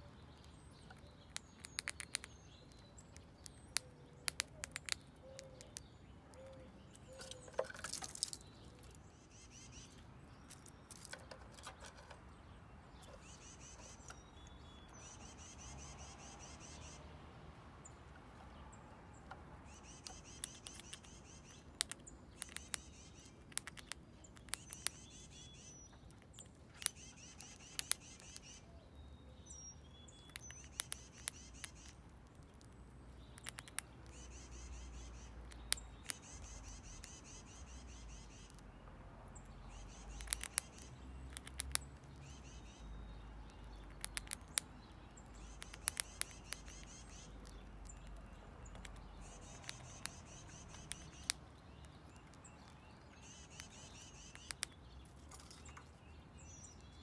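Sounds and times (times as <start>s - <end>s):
squirrel crunching corn: 0.0s - 15.5s, 17.9s - 38.7s, 39.4s - 57.0s
songbirds singing: 0.0s - 57.0s.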